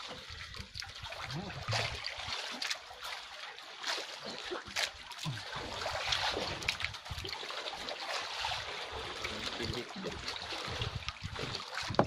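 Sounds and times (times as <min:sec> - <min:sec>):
seawater splashing and dripping: 0:00.0 - 0:12.0.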